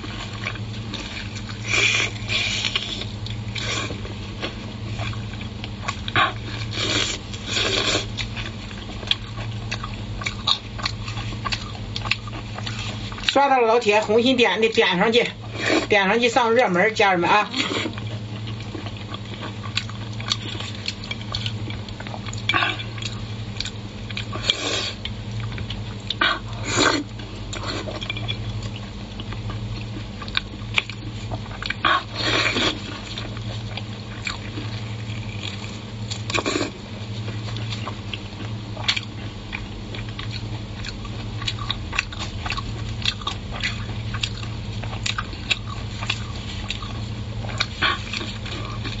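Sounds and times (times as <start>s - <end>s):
chewing and lip smacking: 0.0s - 15.5s, 17.4s - 49.0s
steady low hum: 0.0s - 49.0s.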